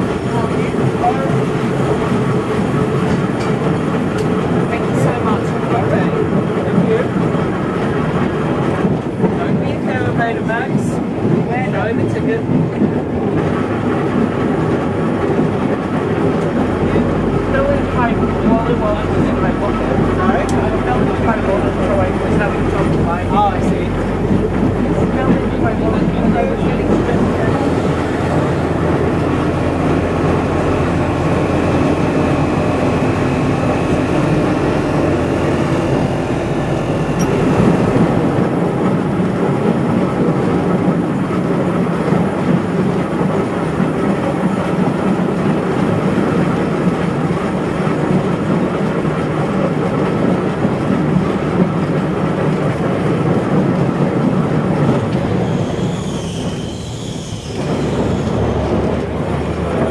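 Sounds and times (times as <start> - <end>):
tram wheels rumbling on rail: 0.0 - 59.9.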